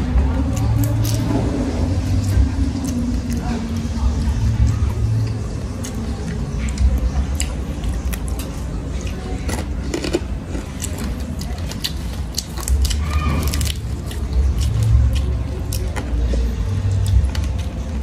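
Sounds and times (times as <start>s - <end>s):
steady low rumble: 0.0s - 12.9s
fingers picking at food: 0.4s - 18.0s.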